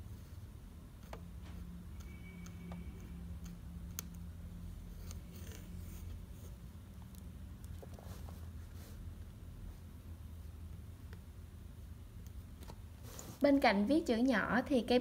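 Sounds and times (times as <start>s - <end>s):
low steady hum: 0.0s - 15.0s
fountain pen scratching on paper: 4.8s - 6.6s.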